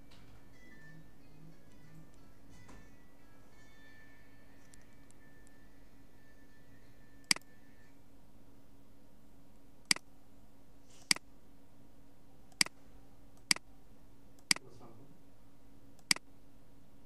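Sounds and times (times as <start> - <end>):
faint steady hum: 0.0 - 17.0
computer mouse clicks: 7.3 - 7.5, 12.5 - 12.8, 13.4 - 13.6, 14.4 - 14.7, 16.0 - 16.2.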